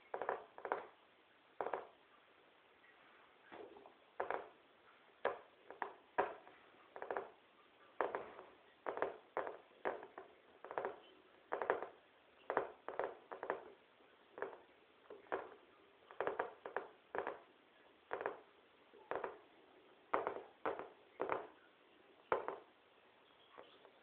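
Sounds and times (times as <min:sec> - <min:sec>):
scratchy taps on floor: 0:01.6 - 0:01.9, 0:08.0 - 0:13.8, 0:14.4 - 0:17.5, 0:18.1 - 0:18.5, 0:19.1 - 0:19.4, 0:20.1 - 0:21.6, 0:22.3 - 0:22.7.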